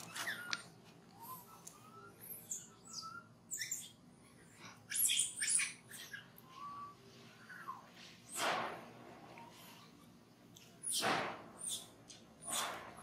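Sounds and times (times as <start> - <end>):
baby monkey squeaking: 0.0 - 6.8, 9.4 - 13.0
baby monkey harsh cry: 1.8 - 6.6.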